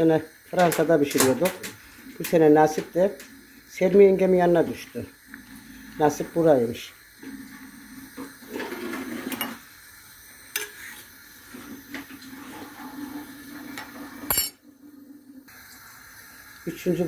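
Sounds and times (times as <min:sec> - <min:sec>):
wooden spoon scraping a pot: 0:07.2 - 0:09.6.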